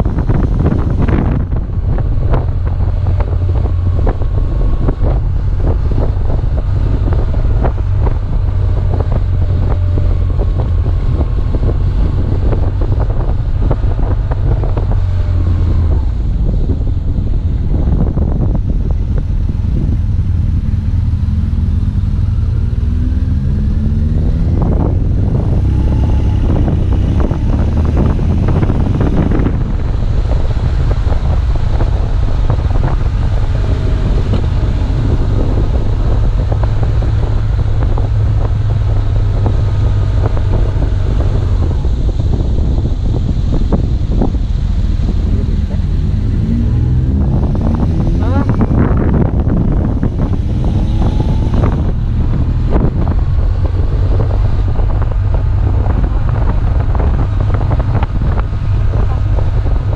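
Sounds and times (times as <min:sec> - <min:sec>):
motorcycle engine revving: 0:00.0 - 0:59.9
wind buffeting microphone: 0:00.0 - 0:59.9.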